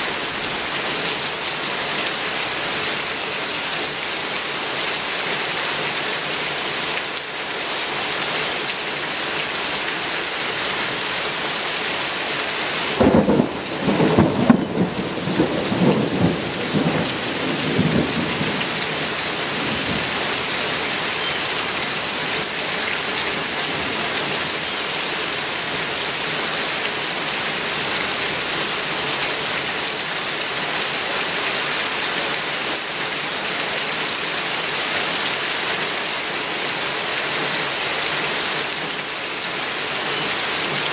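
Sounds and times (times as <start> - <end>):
heavy rain on trees: 0.0 - 40.9
thunder rumbling: 13.0 - 20.1.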